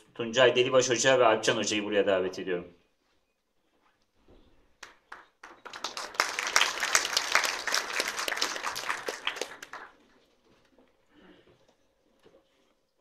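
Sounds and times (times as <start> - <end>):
audience applauding: 4.8 - 10.3.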